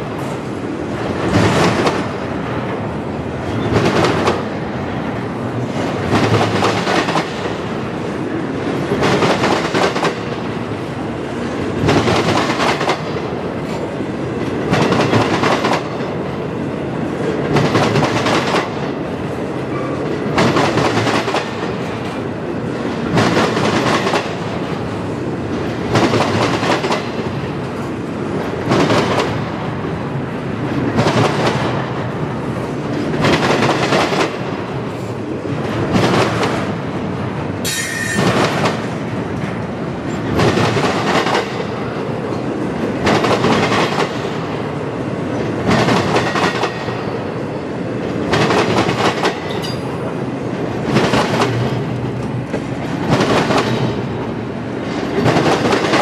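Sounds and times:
freight train wheels clacking: 0:00.0 - 0:56.0
train wheel squeal: 0:37.6 - 0:38.4, 0:49.5 - 0:49.9.

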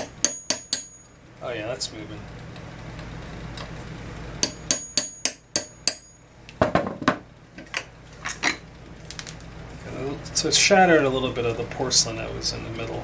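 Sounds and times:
hammer tapping metal punch: 0:00.0 - 0:01.1, 0:04.4 - 0:07.2.

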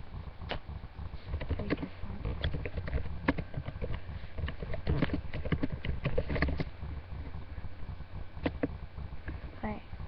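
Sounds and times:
low rumble: 0:00.0 - 0:10.0
clicks and knocks on microphone: 0:00.4 - 0:00.7, 0:01.3 - 0:07.4, 0:08.4 - 0:09.5.

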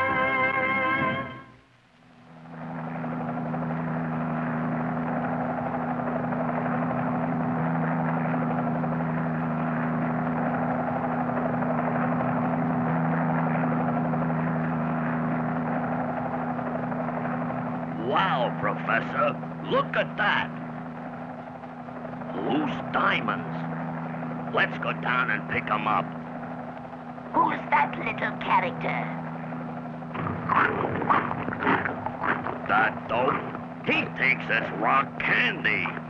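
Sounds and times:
brass music cue: 0:00.0 - 0:01.6
cartoon helicopter engine drone: 0:02.4 - 0:36.0.

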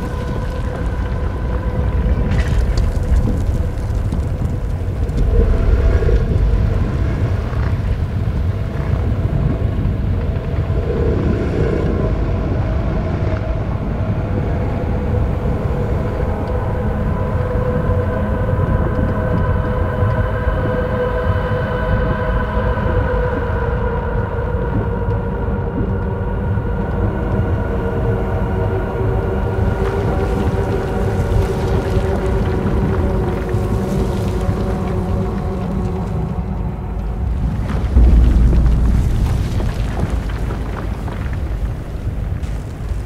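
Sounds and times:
deep steady rumble: 0:00.0 - 0:20.7, 0:34.4 - 0:43.0
sustained ambient tones: 0:37.9 - 0:41.3.

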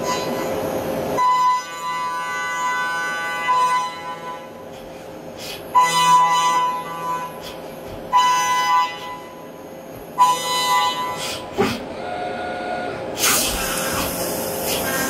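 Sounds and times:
milling cutter high whine: 0:00.0 - 0:15.0
quieter machine whine: 0:00.0 - 0:15.0
burst of hiss: 0:13.2 - 0:15.0.

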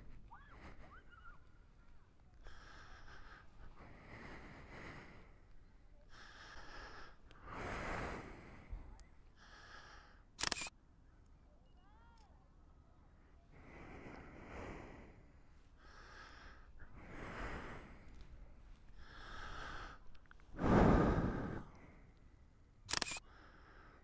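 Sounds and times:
heavy breathing: 0:02.3 - 0:10.7, 0:13.5 - 0:24.0.

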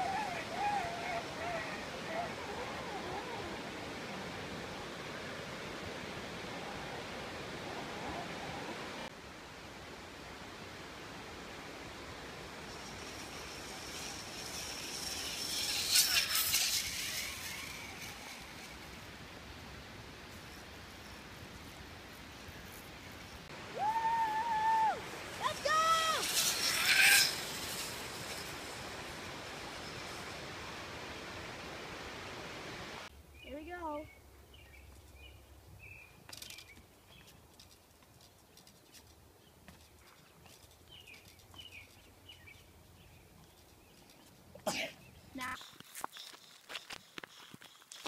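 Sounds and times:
outdoor background hiss: 0:00.0 - 0:48.0
person yelling: 0:23.7 - 0:26.2.

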